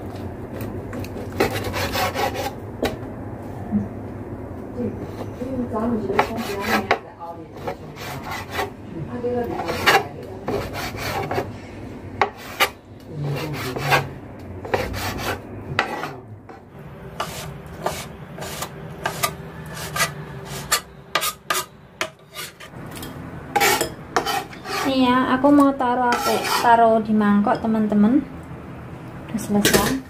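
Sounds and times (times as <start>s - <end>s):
knife scraping and slicing: 17.2s - 22.7s, 23.6s - 24.9s, 26.1s - 26.7s.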